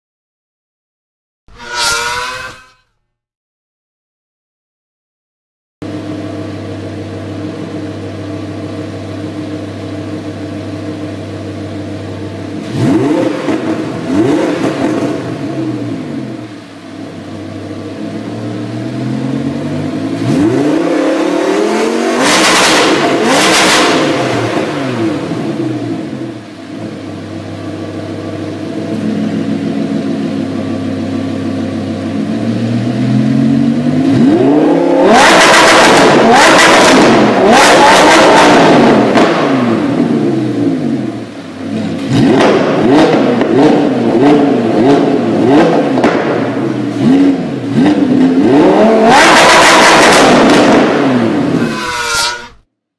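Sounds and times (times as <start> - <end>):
car engine idling: 5.8 - 12.9
car engine revving: 12.4 - 30.7, 32.1 - 52.6.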